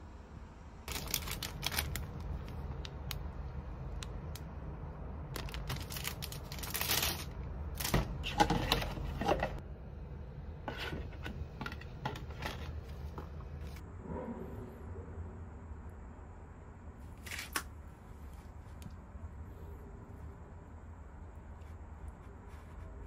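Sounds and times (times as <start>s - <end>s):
plastic bag rustling: 0.9s - 2.8s, 5.3s - 9.6s
plastic packaging crackling: 0.9s - 3.2s, 5.3s - 8.4s
scrapes against plastic pots: 10.6s - 13.3s.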